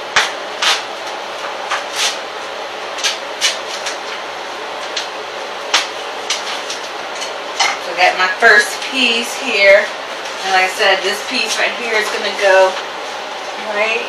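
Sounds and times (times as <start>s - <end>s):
wallpaper rustling and crackling: 0.6s - 7.7s.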